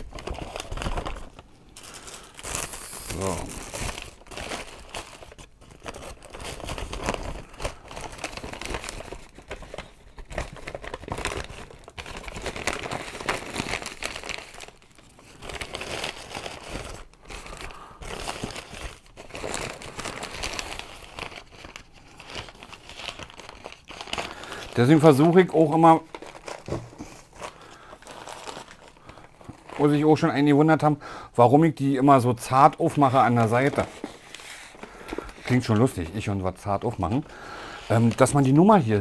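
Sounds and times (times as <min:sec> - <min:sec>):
paper bag crinkling: 0:00.0 - 0:30.9, 0:32.1 - 0:39.0.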